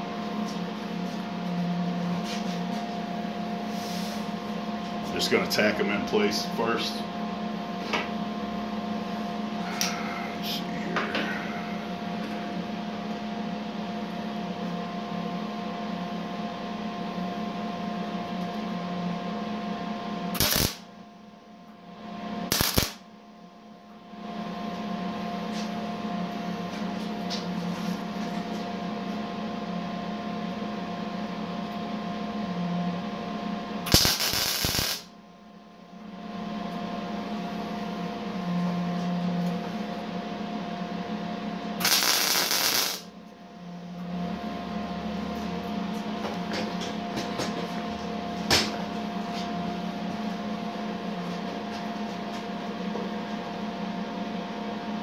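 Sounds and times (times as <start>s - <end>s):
steady electrical hum: 0.0s - 55.0s
welding arc bursts: 20.4s - 20.8s, 22.5s - 23.0s, 33.9s - 35.1s, 41.8s - 43.1s.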